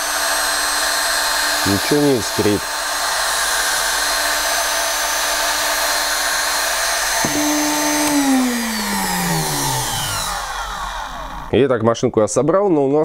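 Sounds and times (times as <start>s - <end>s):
angle grinder motor whining: 7.0s - 11.5s.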